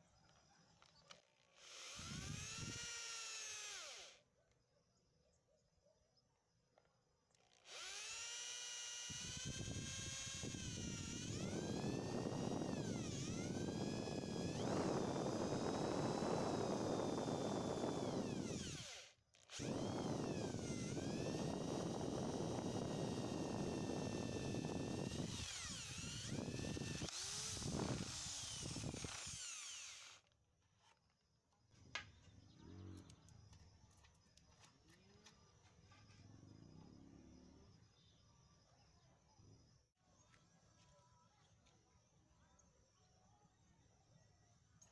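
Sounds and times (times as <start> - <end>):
electric drill boring wood: 1.6 - 4.2, 7.5 - 30.3.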